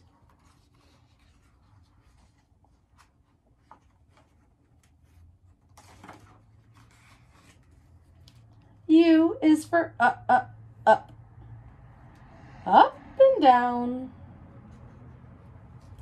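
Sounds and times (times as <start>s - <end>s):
paper page turning rustle: 0.0s - 8.8s.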